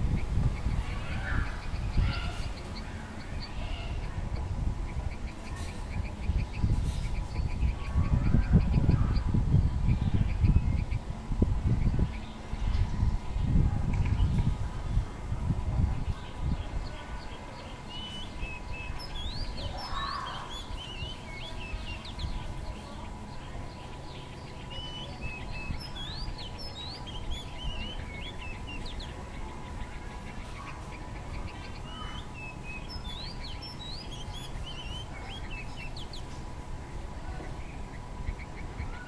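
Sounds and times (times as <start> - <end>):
bird chirping: 16.1 - 36.4.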